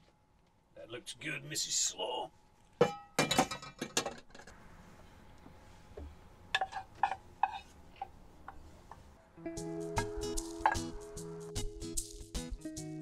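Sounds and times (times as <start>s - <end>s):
utensil scraping metal saucepan: 6.6s - 8.6s.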